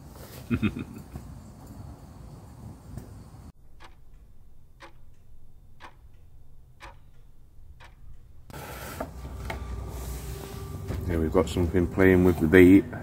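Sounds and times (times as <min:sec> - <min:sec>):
clock ticking: 0:03.6 - 0:08.6.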